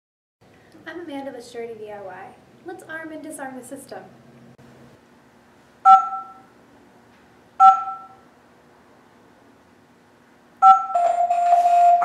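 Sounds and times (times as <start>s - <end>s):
alarm panel two-note beeps: 5.9s - 6.4s, 7.6s - 8.2s, 10.6s - 12.0s.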